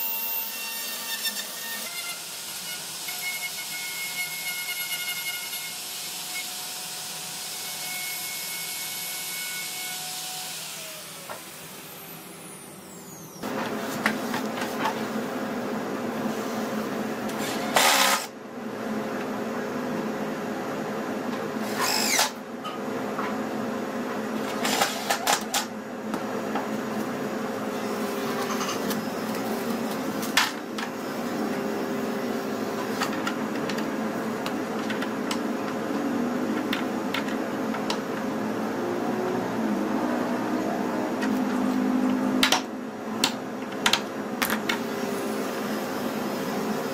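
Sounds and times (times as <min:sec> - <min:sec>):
impact driver driving screws: 0:17.4 - 0:18.3.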